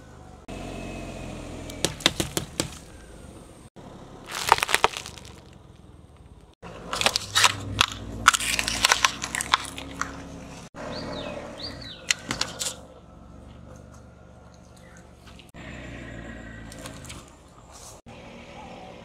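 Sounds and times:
low engine rumble: 0:00.0 - 0:19.0
wrappers crackling and crunching: 0:04.3 - 0:05.6, 0:06.9 - 0:10.1
toys cracking under tyre: 0:04.3 - 0:10.4.

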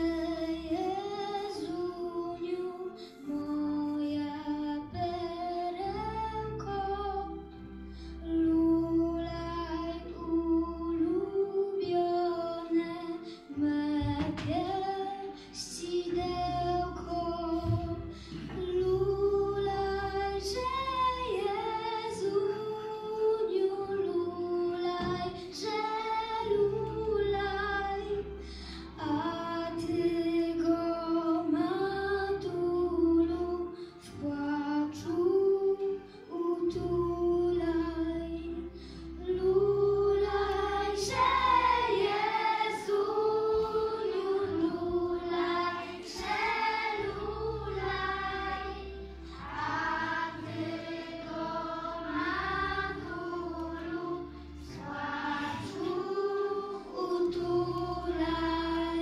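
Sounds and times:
young voices singing together: 0:00.0 - 0:07.5, 0:08.2 - 0:59.0
instrumental accompaniment: 0:39.3 - 0:59.0.

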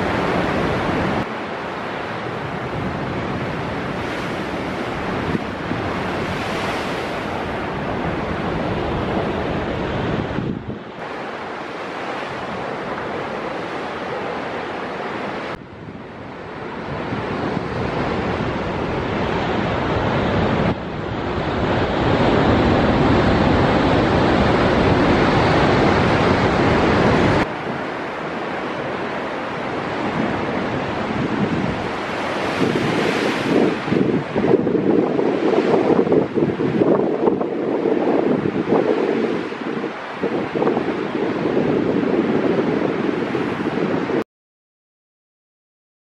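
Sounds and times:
waves crashing against cliffs: 0:00.0 - 0:44.2
wind buffeting microphone: 0:00.0 - 0:44.2.

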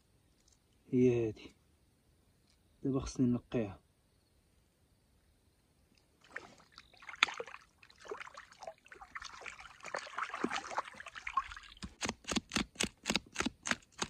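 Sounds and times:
water trickling and splashing: 0:06.2 - 0:12.0.

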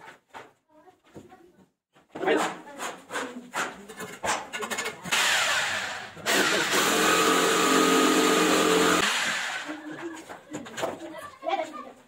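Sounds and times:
angle grinder cutting brick: 0:04.8 - 0:09.8.

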